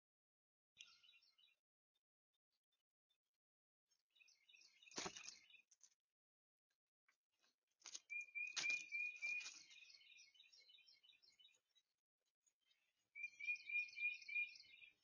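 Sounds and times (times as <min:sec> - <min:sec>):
small birds chirping: 0:00.8 - 0:03.3, 0:03.9 - 0:06.0, 0:07.8 - 0:15.0
whistled bird notes: 0:08.1 - 0:11.6, 0:13.1 - 0:15.0.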